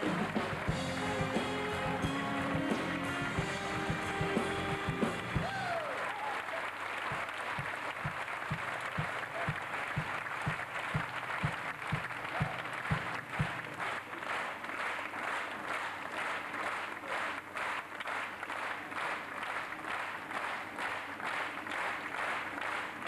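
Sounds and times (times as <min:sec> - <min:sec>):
audience applauding: 0:00.0 - 0:23.0
low steady beat: 0:07.6 - 0:13.7.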